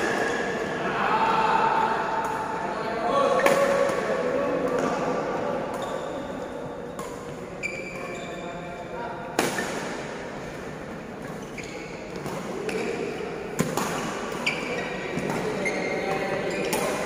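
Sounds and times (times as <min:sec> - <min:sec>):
shoes squeaking on court: 0:05.7 - 0:08.7, 0:11.2 - 0:13.1, 0:13.7 - 0:17.0
rackets hitting shuttlecock: 0:09.3 - 0:10.1, 0:12.1 - 0:17.0.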